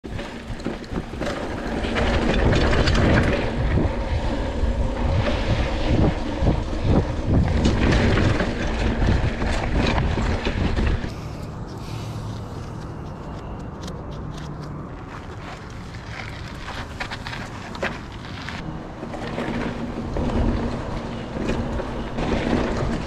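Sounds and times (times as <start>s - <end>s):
bike knocking and rattling: 0.0s - 11.8s, 12.4s - 23.0s
bike tyres rolling over dirt: 0.1s - 11.1s, 14.9s - 23.0s
wind buffeting microphone: 0.1s - 11.2s.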